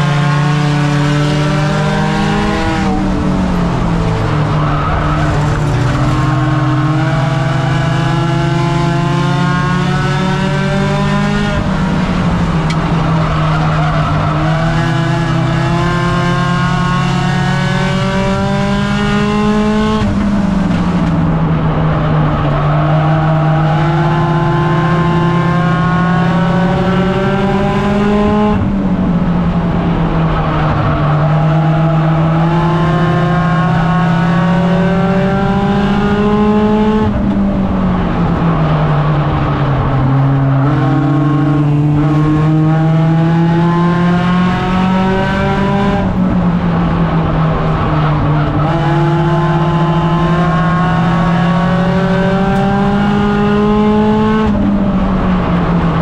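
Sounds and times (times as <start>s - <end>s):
race car engine: 0.0s - 56.0s
road and wind noise: 0.0s - 56.0s.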